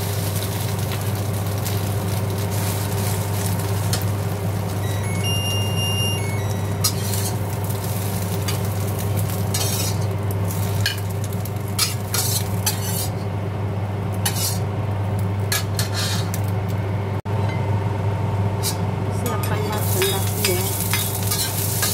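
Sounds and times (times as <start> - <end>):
short high beep: 4.8 - 6.9
metal spatula scraping a wok: 6.8 - 11.1, 11.7 - 13.2, 14.2 - 14.7, 15.5 - 16.4, 18.6 - 18.8, 19.5 - 21.9.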